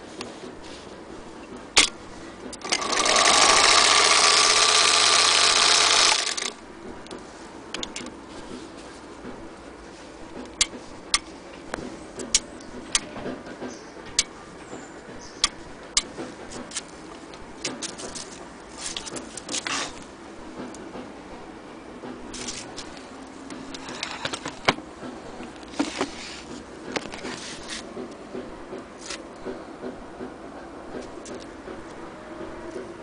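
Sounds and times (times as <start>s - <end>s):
sewing machine being handled: 2.5s - 6.6s.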